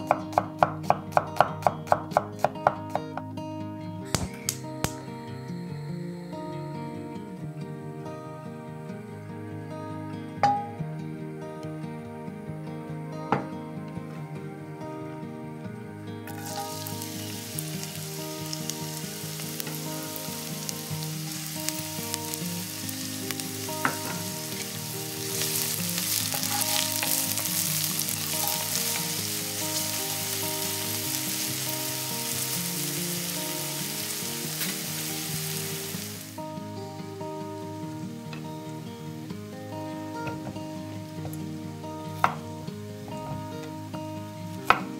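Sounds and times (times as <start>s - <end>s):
soft background music: 0.0s - 44.9s
onion sizzling in oil: 16.3s - 36.5s.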